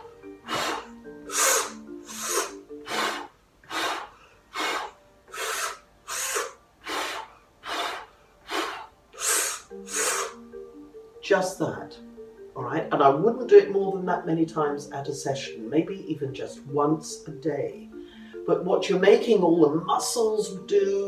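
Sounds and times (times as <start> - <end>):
woman puffing breath out: 0.4 - 10.4
woman sucking breath in: 0.4 - 10.4.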